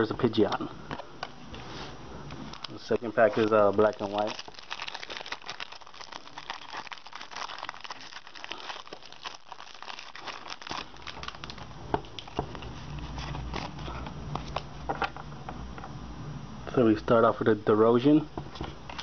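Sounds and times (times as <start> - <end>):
foil wrapper crinkling and tearing: 2.5 - 14.7.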